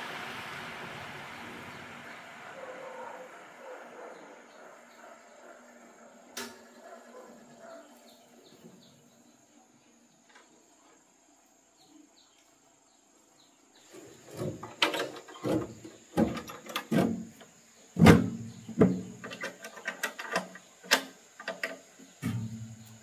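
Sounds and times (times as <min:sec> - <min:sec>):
metal knocks and clicks: 0:14.3 - 0:22.8.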